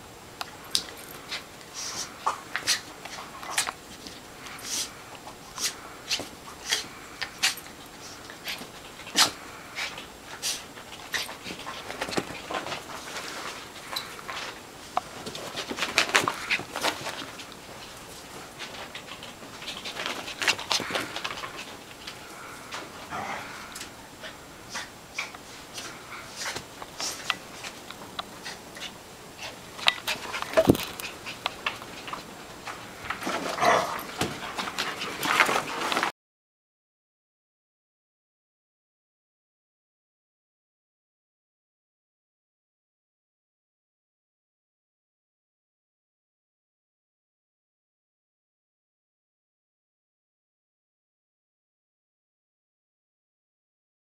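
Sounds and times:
paws tapping and scuffling: 0:00.4 - 0:36.1
dogs yapping and huffing: 0:00.5 - 0:36.1.

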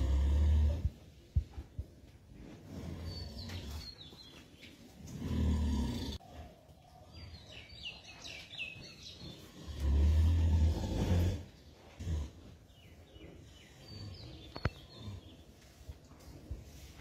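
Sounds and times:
small birds chirping: 0:02.7 - 0:10.0, 0:11.6 - 0:16.5.

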